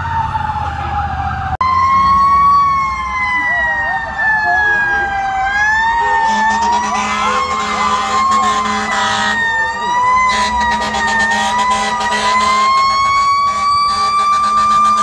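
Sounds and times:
fire truck sirens wailing: 0:00.0 - 0:15.0
fire truck air horn blasts: 0:06.0 - 0:15.0.

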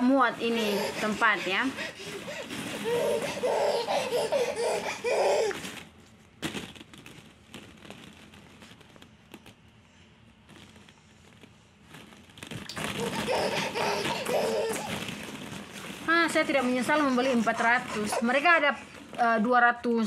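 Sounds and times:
plastic balls clicking and rustling: 0:00.4 - 0:19.4
toddler laughing and vocalizing: 0:00.5 - 0:05.6, 0:12.8 - 0:15.2, 0:16.4 - 0:18.9.

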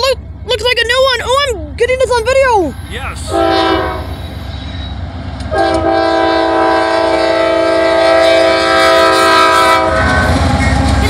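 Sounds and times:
train rumbling: 0:00.0 - 0:11.0
train air horn blast: 0:03.2 - 0:04.4, 0:05.5 - 0:11.0.

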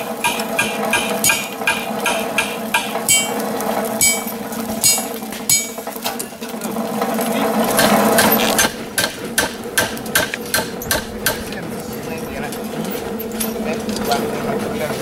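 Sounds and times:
hammer blows on iron bar: 0:00.0 - 0:05.9
ringing strike on anvil: 0:00.3 - 0:05.9.

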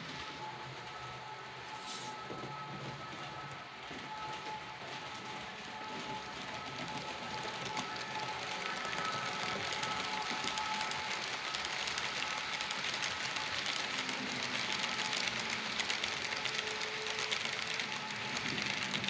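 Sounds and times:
model train wheels rattling on rails: 0:05.2 - 0:19.0.

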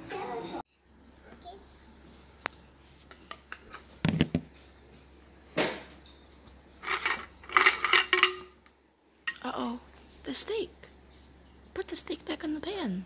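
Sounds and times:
plastic toy cookware clattering: 0:06.8 - 0:08.6.

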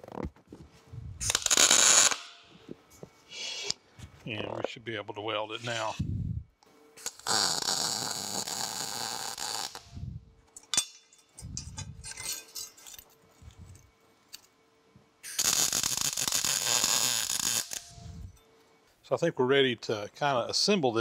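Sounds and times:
welder arc crackling: 0:01.2 - 0:02.4, 0:07.0 - 0:10.0, 0:15.2 - 0:18.3.

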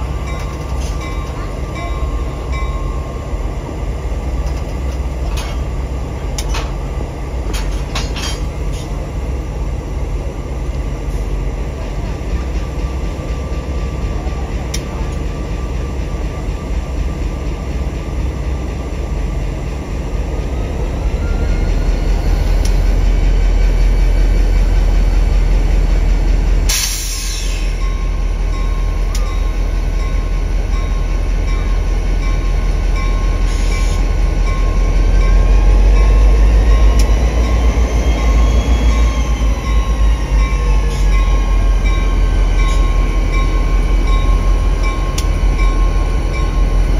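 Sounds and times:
diesel locomotive rumbling: 0:00.0 - 0:46.9
loud hiss: 0:26.7 - 0:27.8.

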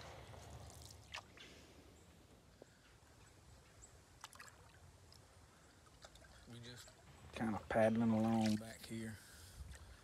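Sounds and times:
water dripping from paddle: 0:04.2 - 0:07.1.

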